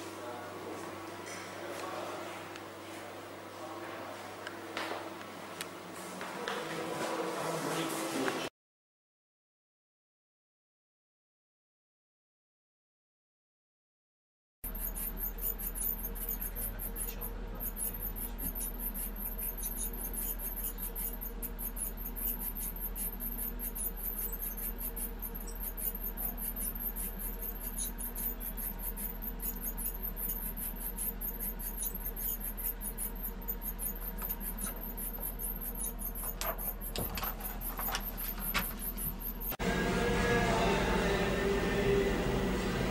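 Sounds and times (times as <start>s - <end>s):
machine humming: 14.6s - 42.9s
rollers ticking and squeaking: 14.6s - 42.9s.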